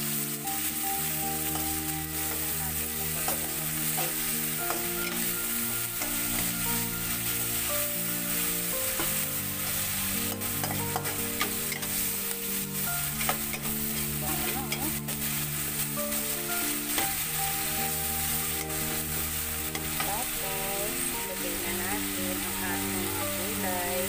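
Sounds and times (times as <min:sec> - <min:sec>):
vegetables sizzling in a wok: 0:00.0 - 0:24.0
metal spatula scraping wok: 0:03.2 - 0:20.4.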